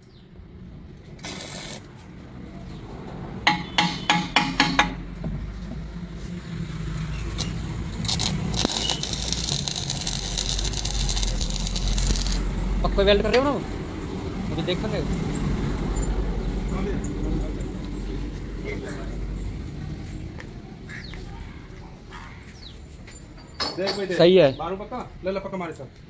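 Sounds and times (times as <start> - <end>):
welding arc crackling and hissing: 1.2 - 1.9, 7.2 - 13.1.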